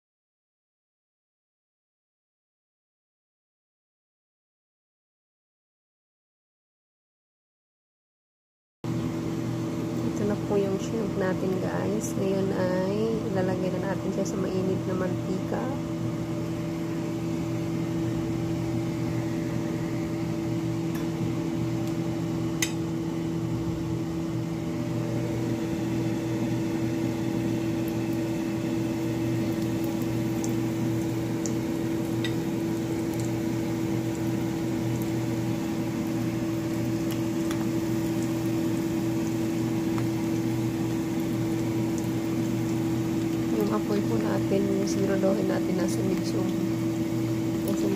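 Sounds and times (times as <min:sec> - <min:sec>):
mechanical appliance hum: 0:08.8 - 0:47.9
shrimp sizzling in hot oil: 0:25.4 - 0:47.9.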